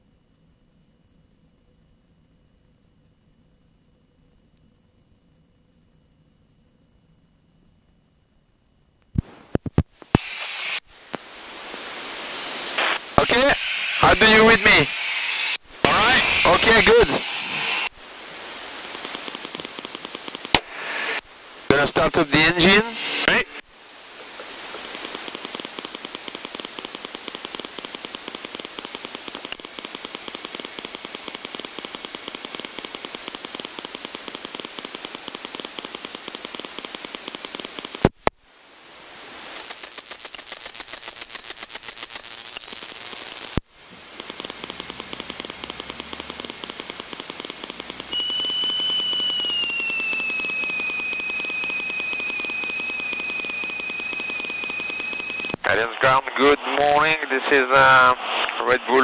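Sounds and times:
high whine: 0:10.0 - 0:38.2, 0:39.5 - 0:59.0
piston engine running: 0:44.0 - 0:55.6.

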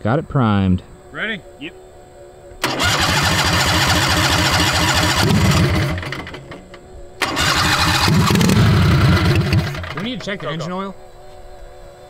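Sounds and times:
engine running with even pulse: 0:02.6 - 0:10.3.

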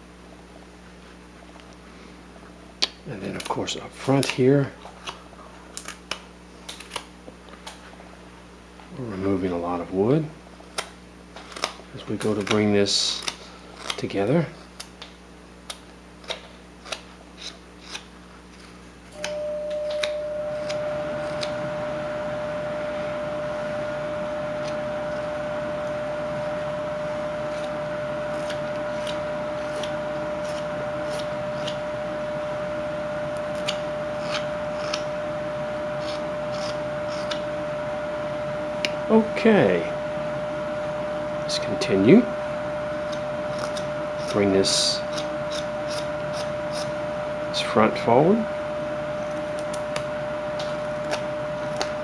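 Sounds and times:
steady mechanical hum: 0:00.0 - 0:52.0
knife whittling wood: 0:16.2 - 0:32.4, 0:33.2 - 0:35.2, 0:35.8 - 0:37.6, 0:43.0 - 0:47.0.

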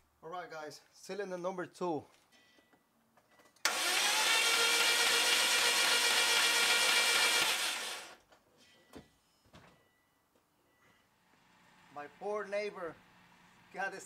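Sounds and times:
starter motor cranking engine: 0:03.6 - 0:08.2.

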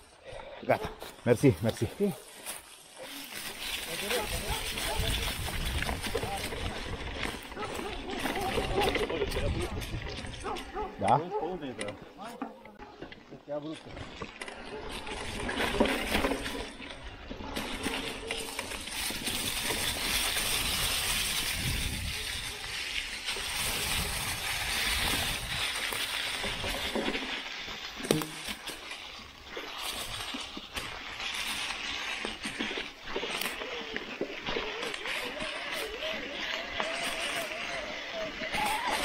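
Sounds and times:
bike tyres rustling through dry leaves: 0:00.0 - 0:11.0, 0:13.4 - 0:39.0
bike rattling over bumps: 0:02.2 - 0:39.0.

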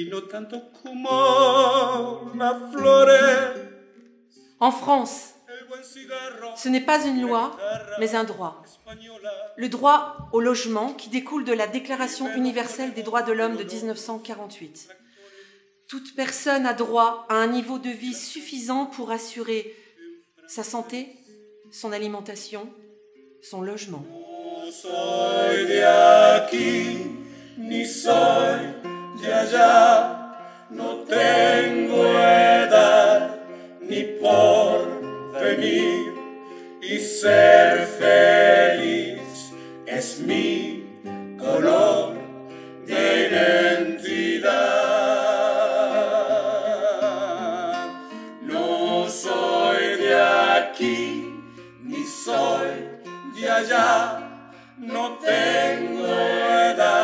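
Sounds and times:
voices singing together: 0:00.0 - 0:03.8, 0:05.5 - 0:10.6, 0:11.8 - 0:14.1, 0:24.0 - 0:57.0
acoustic guitar: 0:00.0 - 0:57.0.

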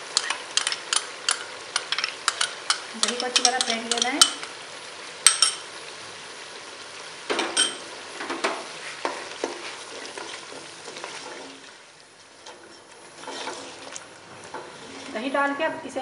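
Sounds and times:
utensil knocking and scraping pot: 0:00.0 - 0:04.5
food sizzling in a pot: 0:00.0 - 0:16.0.

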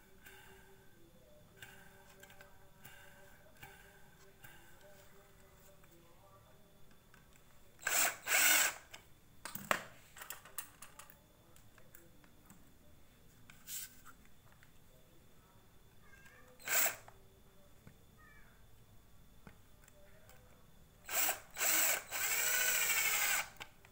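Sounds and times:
cordless drill spinning: 0:07.8 - 0:08.8, 0:16.6 - 0:17.0, 0:21.1 - 0:23.6.

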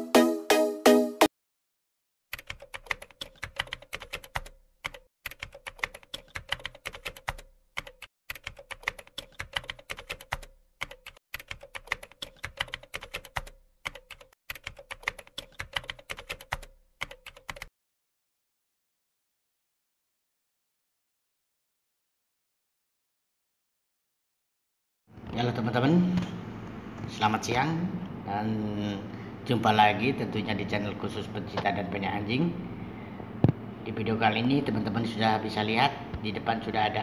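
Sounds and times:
keyboard typing clicks: 0:02.3 - 0:17.7.

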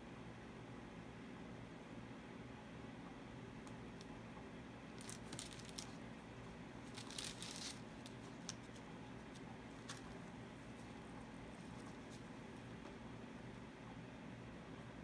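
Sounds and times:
low steady hum: 0:00.0 - 0:15.0
crinkling and rustling handling noise: 0:04.9 - 0:13.1.

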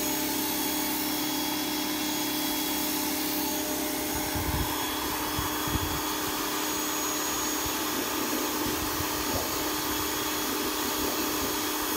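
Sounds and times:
pressure washer motor humming: 0:00.0 - 0:11.9
water jet spraying on wood: 0:00.0 - 0:11.9.

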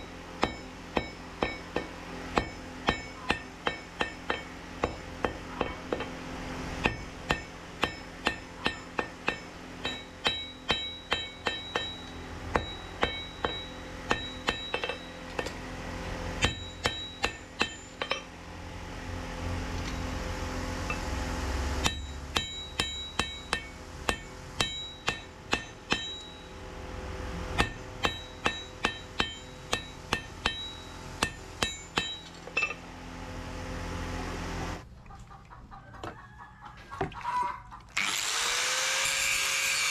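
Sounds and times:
hammer striking anvil: 0:00.0 - 0:06.2, 0:06.8 - 0:15.7, 0:16.4 - 0:18.3, 0:21.8 - 0:26.6, 0:27.5 - 0:32.8.

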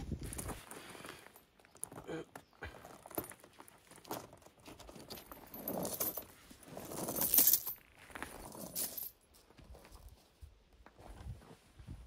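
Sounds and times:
metal tools clinking and rattling: 0:04.2 - 0:07.9.

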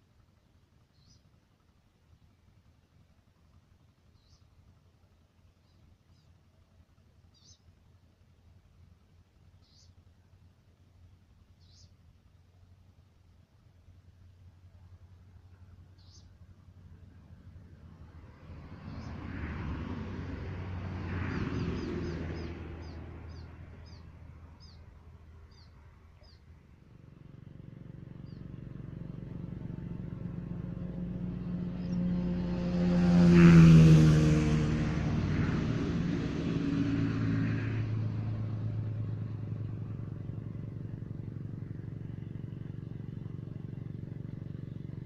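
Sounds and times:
bird chirping: 0:00.9 - 0:01.3, 0:04.1 - 0:04.6, 0:07.2 - 0:07.7, 0:09.5 - 0:10.0, 0:11.6 - 0:12.0, 0:15.5 - 0:16.4, 0:21.3 - 0:26.5, 0:28.1 - 0:28.6
vehicle engine passing: 0:15.2 - 0:45.0.

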